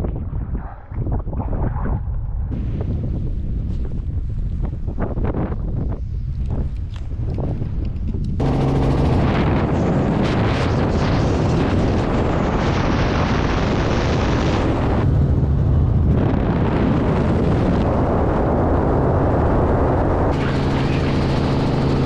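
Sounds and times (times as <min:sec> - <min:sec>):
wind buffeting microphone: 0:00.0 - 0:22.0
helicopter in flight: 0:06.4 - 0:22.0.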